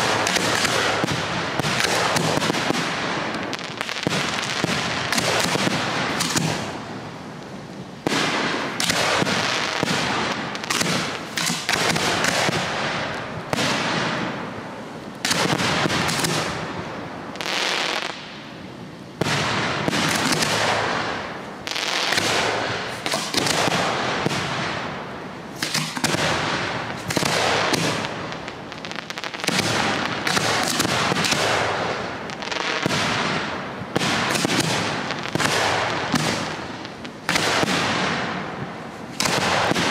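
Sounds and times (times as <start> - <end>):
firework shells bursting: 8.0 - 16.7, 19.2 - 39.9.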